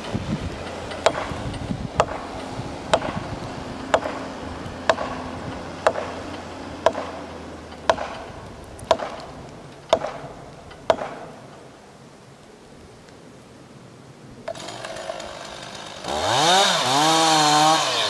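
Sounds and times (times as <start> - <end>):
sharp wooden knocks: 0.6 - 11.6.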